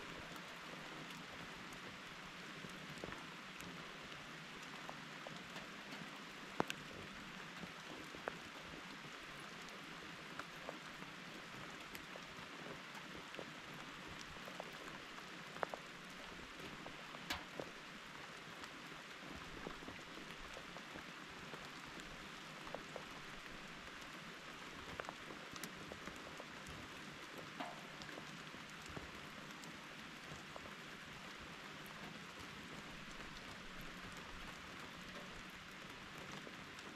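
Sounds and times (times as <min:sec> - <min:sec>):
raindrops ticking: 0:00.0 - 0:36.9
rain hissing: 0:21.5 - 0:36.9.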